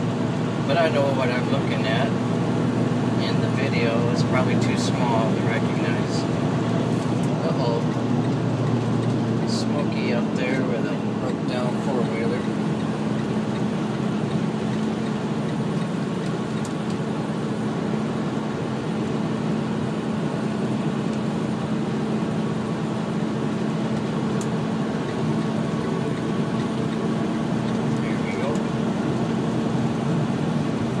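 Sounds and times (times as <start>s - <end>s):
constant low hum: 0.0s - 31.0s
truck engine drone: 0.0s - 31.0s
tyre road noise: 0.0s - 31.0s.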